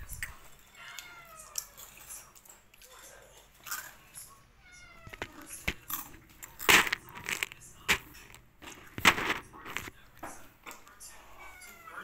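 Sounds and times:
crisp food crunching: 0:00.0 - 0:04.4, 0:05.0 - 0:10.1.

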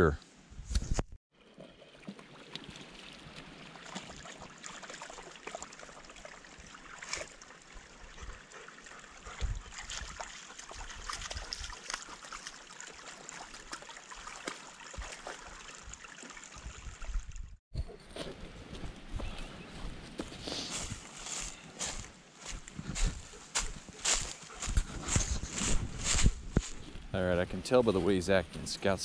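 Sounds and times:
stream trickling over rocks: 0:01.4 - 0:17.5.

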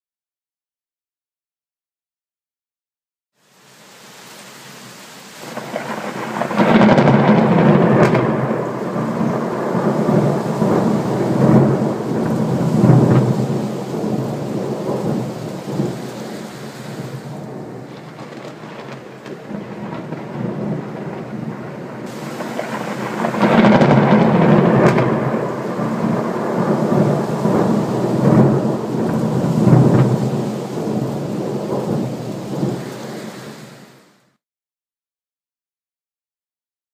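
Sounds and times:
steady rain: 0:03.4 - 0:34.4
thunder rumbling: 0:05.4 - 0:34.0.

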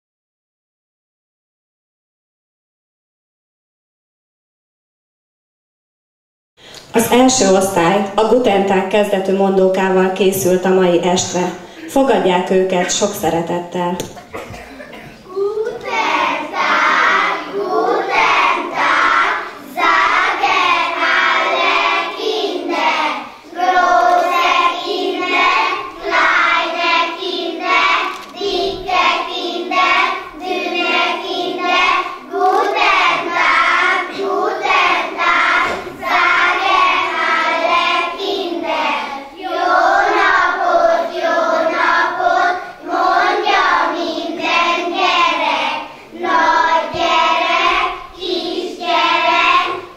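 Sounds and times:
children chanting in unison: 0:15.3 - 0:49.9.

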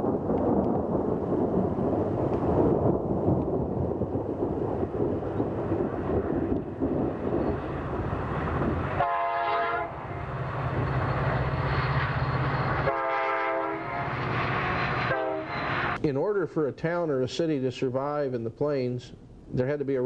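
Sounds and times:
train rumbling: 0:00.0 - 0:16.0
train air horn blasts: 0:09.0 - 0:10.0, 0:12.8 - 0:16.0.

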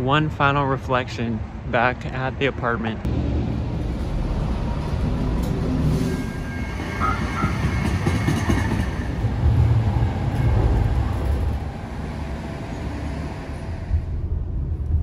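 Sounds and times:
train wheels rumbling on track: 0:03.1 - 0:15.0.

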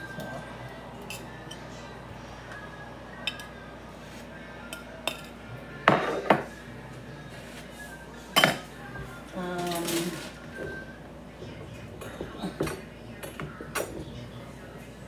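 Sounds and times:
utensils and dishes clattering: 0:00.0 - 0:02.0, 0:03.1 - 0:06.7, 0:08.3 - 0:14.4.

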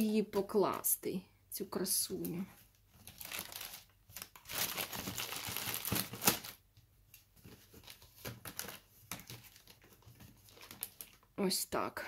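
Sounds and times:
plastic air packaging crinkling: 0:02.6 - 0:11.4.

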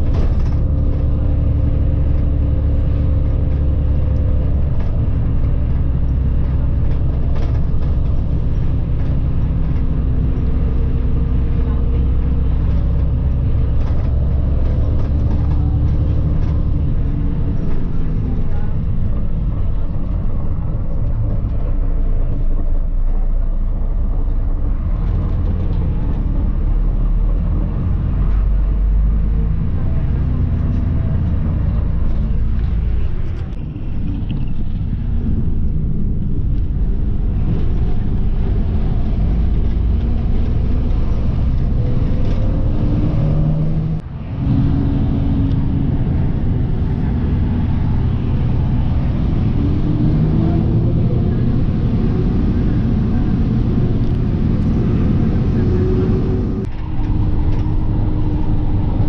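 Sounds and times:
bus engine running: 0:00.0 - 0:59.0
road rumble: 0:00.0 - 0:59.0.

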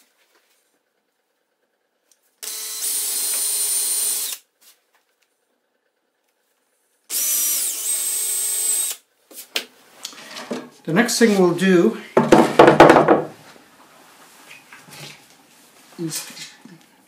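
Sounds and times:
power drill boring through wood: 0:02.4 - 0:04.4, 0:07.1 - 0:09.0.

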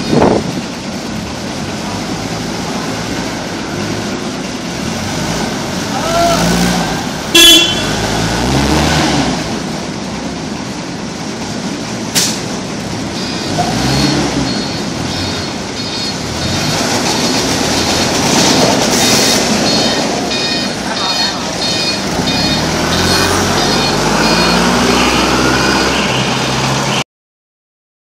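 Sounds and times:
forklift engine running: 0:00.0 - 0:27.0
horn toot: 0:07.3 - 0:08.0
reversing alarm beeping: 0:13.1 - 0:27.0.

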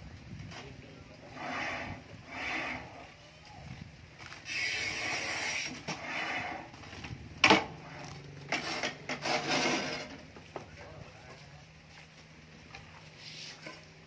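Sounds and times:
trowel scraping wet mortar: 0:04.5 - 0:06.7, 0:08.5 - 0:10.2.

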